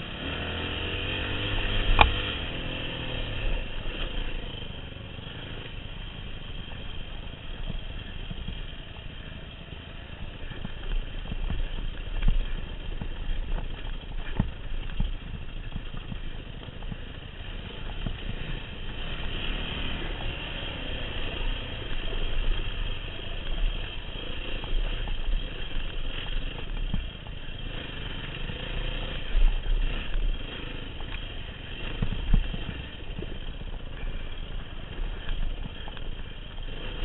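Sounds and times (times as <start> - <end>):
dirt bike engine at low revs: 0.0 - 37.0
bike knocks and rattles: 10.4 - 18.7.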